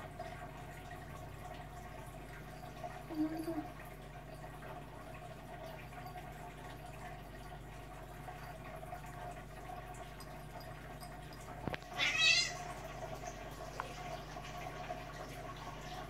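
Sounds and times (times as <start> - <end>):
faint steady hum: 0.0 - 16.0
cat crying: 12.0 - 12.6.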